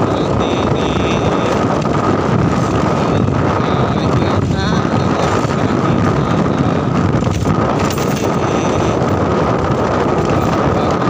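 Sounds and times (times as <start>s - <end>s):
motorcycle engine: 0.0s - 11.0s
road noise: 0.0s - 11.0s
wind buffeting the microphone: 0.0s - 11.0s.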